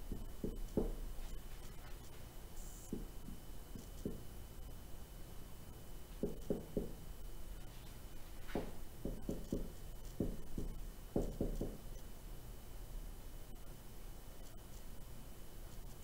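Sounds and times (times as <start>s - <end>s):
marker writing on a whiteboard: 6.2s - 7.0s, 8.4s - 11.8s.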